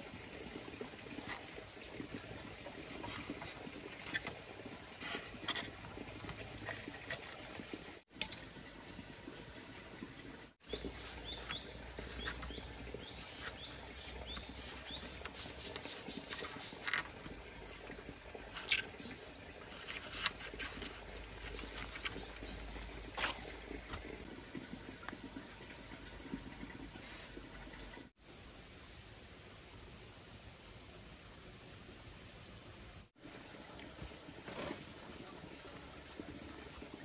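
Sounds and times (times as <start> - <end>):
steady hiss: 28.1 - 35.4.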